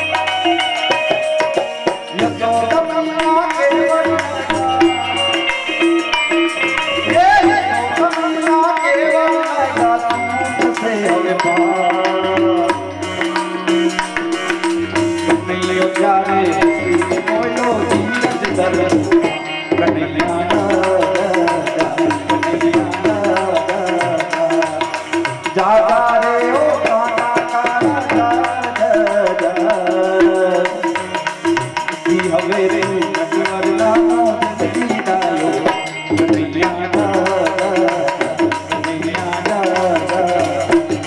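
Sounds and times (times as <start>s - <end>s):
person singing: 0.0s - 31.1s, 32.0s - 41.0s
instrumental accompaniment: 0.0s - 41.0s
tabla drumming: 0.0s - 41.0s.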